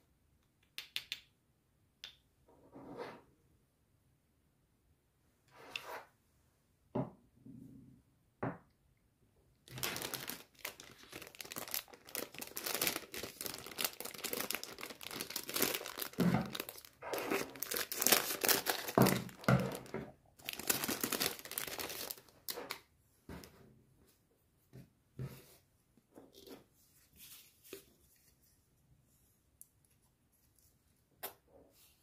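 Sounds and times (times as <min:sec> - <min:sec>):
packaging crinkling and tearing: 0:09.7 - 0:22.8.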